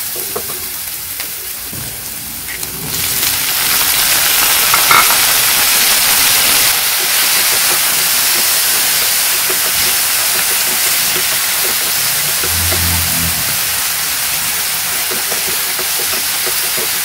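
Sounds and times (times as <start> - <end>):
vegetables sizzling in hot oil: 3.1 - 13.0.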